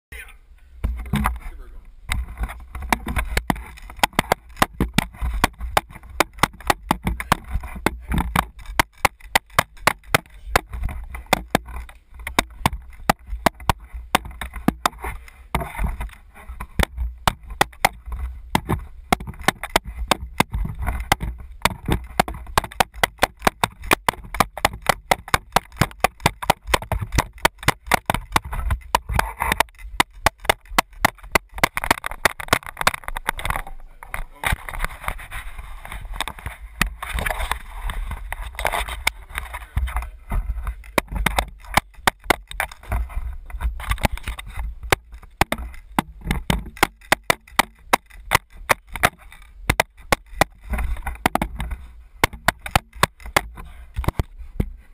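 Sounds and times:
hockey stick tapping ball: 2.1s - 34.9s, 36.2s - 54.8s.

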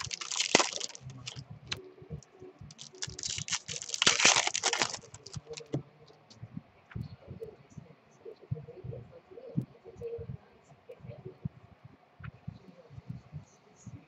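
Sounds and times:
card pack rustling: 0.0s - 1.4s, 2.7s - 5.7s.

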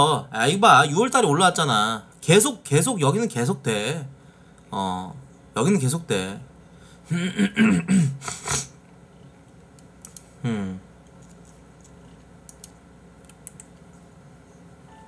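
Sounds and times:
man humming: 7.1s - 7.9s, 10.4s - 10.9s
mouse and keyboard clicks: 9.8s - 10.3s.

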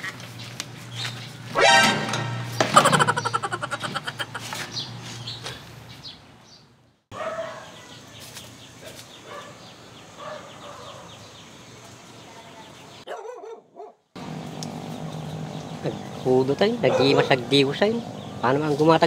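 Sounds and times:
dog barking: 7.1s - 8.0s, 9.2s - 11.1s, 13.1s - 14.0s, 16.8s - 17.5s.

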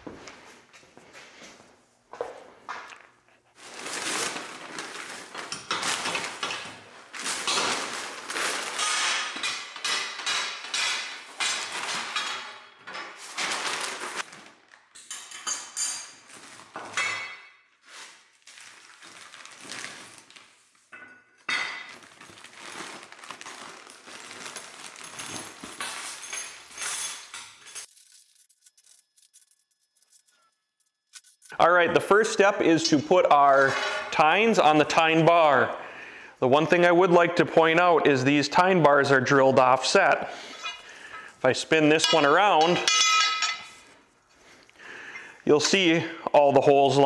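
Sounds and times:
metal parts clinking and clattering: 5.3s - 13.7s, 14.9s - 17.6s, 23.8s - 31.6s, 42.0s - 44.0s.

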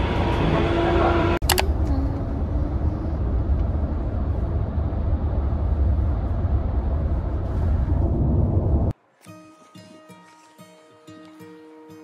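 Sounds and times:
car interior road rumble: 0.0s - 8.9s.

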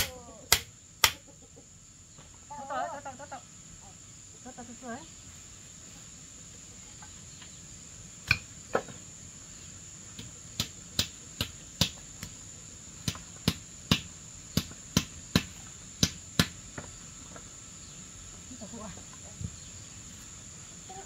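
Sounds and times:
hammer striking wooden poles: 0.0s - 1.2s, 10.2s - 12.4s, 13.0s - 16.9s
high insect drone: 0.0s - 21.0s.

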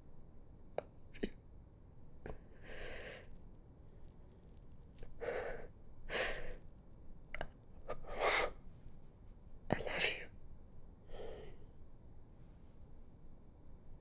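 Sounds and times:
person breathing heavily: 11.1s - 11.7s.

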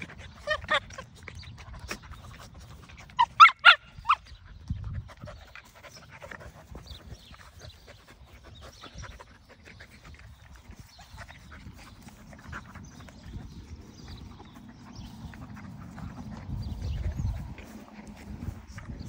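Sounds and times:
dog panting: 0.0s - 19.0s
dog yips: 3.2s - 4.2s.

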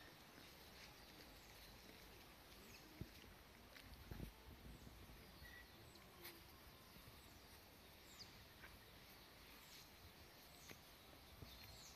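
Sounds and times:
faint high bird chirps: 4.5s - 11.9s.

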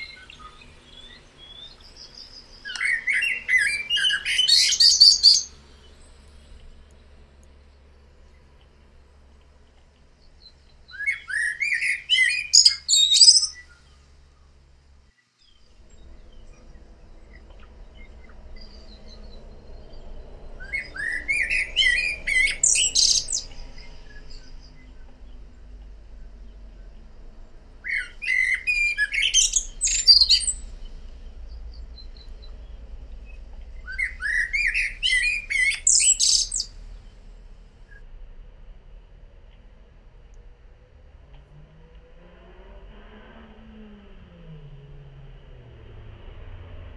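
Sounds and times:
blackbird singing: 0.0s - 6.5s, 10.2s - 14.0s, 15.4s - 25.6s, 27.8s - 37.2s.

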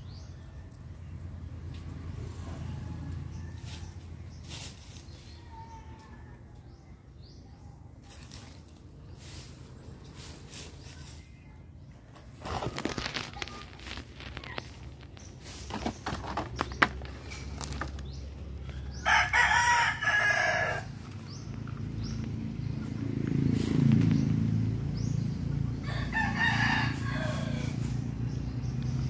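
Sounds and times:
rooster crowing: 19.0s - 21.0s, 25.8s - 27.8s.

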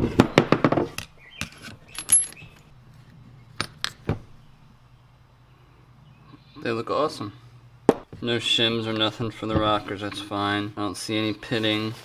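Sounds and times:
metal tools clicking and clinking: 1.4s - 2.7s
high ringing clink: 1.9s - 2.6s.

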